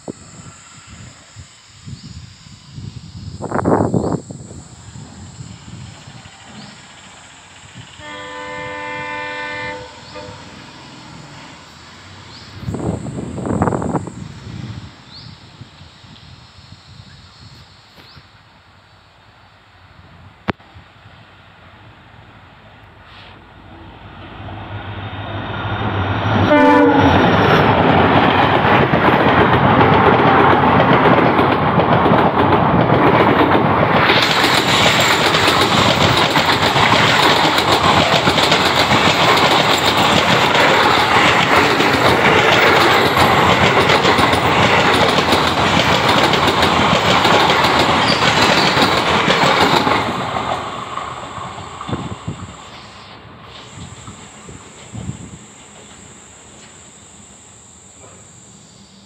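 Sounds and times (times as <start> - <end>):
train horn blast: 8.0 - 10.8, 24.2 - 27.6
train wheels clattering over rails: 25.3 - 56.0.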